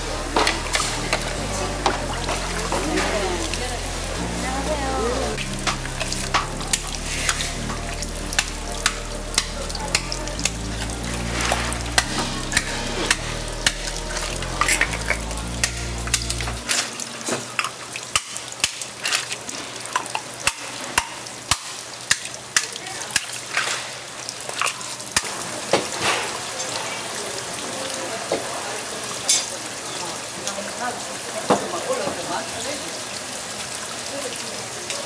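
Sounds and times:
low steady tones: 0.0 - 18.7
food sizzling and frying: 0.0 - 35.0.

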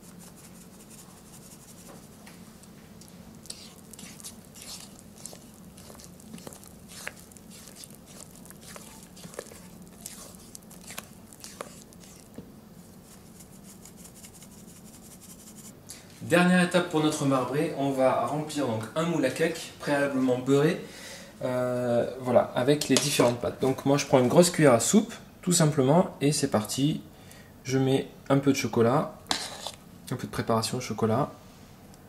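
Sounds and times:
spatula scraping batter in a bowl: 0.0 - 2.2, 3.4 - 15.7, 29.3 - 29.8.

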